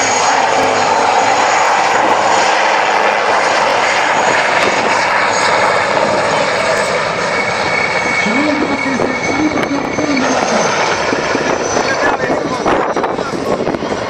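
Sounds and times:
helicopter flying low: 0.0 - 14.0.

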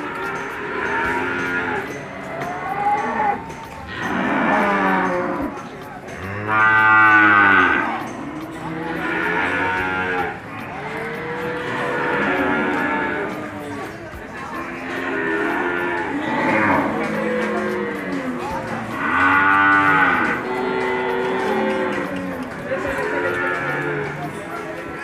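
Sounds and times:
cattle mooing: 6.2 - 13.8, 14.9 - 24.4.

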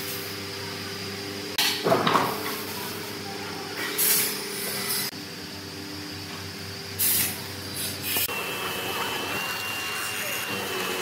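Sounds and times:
workshop machinery humming: 0.0 - 11.0
loud air hissing bursts: 6.9 - 8.3.

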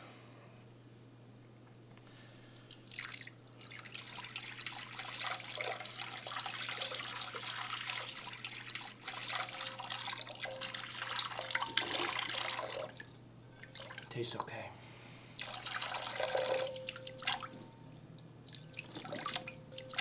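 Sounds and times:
water pouring into a bowl: 2.6 - 14.1, 15.4 - 20.0.

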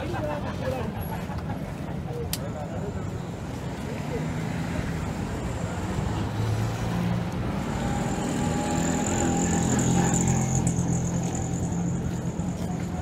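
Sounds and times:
vehicle engines running: 0.0 - 13.0
auto-rickshaw passing by: 3.6 - 13.0.

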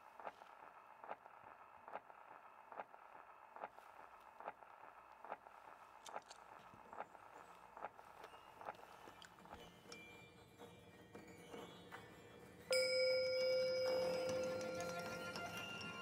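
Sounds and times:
record surface hiss: 0.0 - 10.2.

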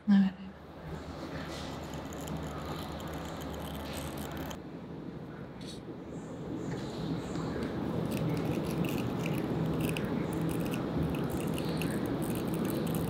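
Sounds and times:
low background noise: 0.0 - 13.0
tweezers clicking on lash fibers: 8.1 - 13.0.

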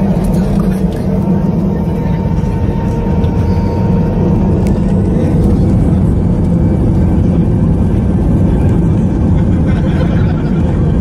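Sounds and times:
faint high whine: 0.0 - 6.4
jet engines and wheels rumbling: 0.0 - 11.0.

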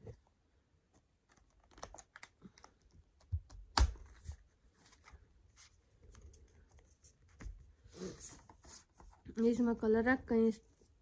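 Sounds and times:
small clicks and taps: 0.9 - 4.0.

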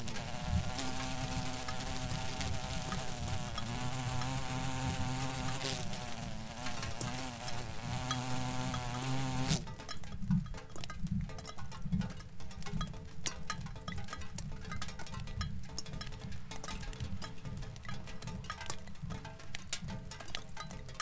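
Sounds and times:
flies buzzing: 0.0 - 9.6.

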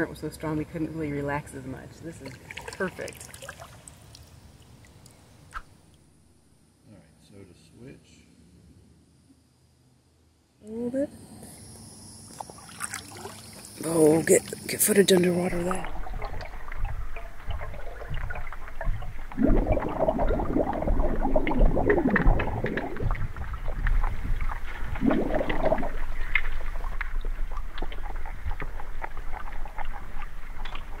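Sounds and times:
underwater gurgling and sloshing: 12.1 - 31.0
low underwater rumble: 15.4 - 31.0
paddle strokes churning water: 15.6 - 31.0
small underwater clicks: 15.8 - 31.0.

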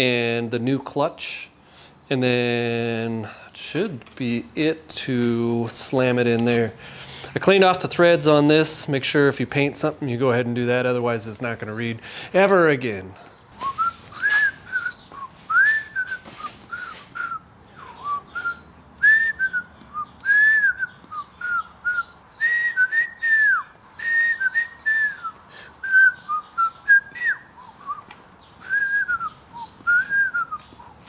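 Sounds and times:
man whistling a tune: 13.6 - 30.8.

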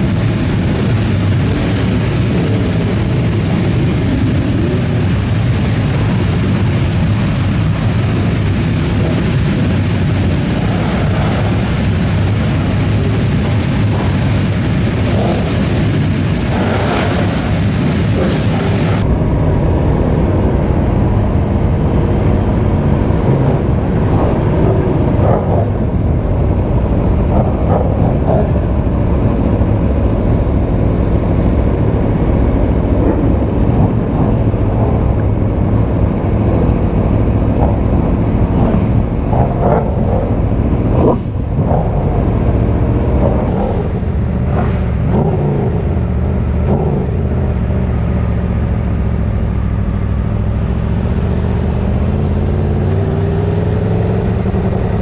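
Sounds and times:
motorcycle engine running: 0.0 - 55.0
wind rush over microphone: 0.0 - 55.0.

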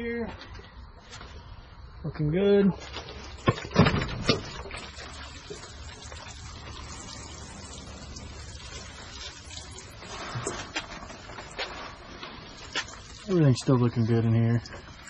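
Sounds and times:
water running: 4.3 - 15.0.

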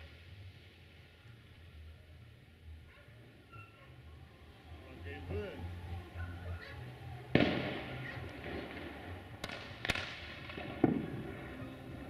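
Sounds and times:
firework bang: 7.3 - 11.4
firework cracks: 7.3 - 11.6.

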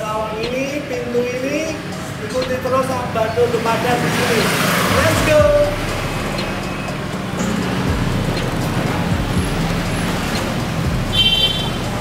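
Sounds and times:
street traffic noise: 0.0 - 12.0
motorbike engine passing by: 3.1 - 12.0.

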